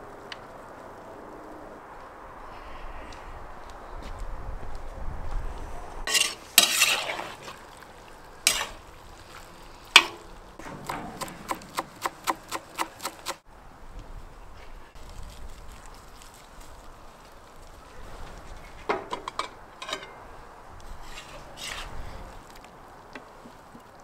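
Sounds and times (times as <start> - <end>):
metal spoon scraping pot: 6.1 - 7.4, 8.5 - 8.8, 20.9 - 21.9.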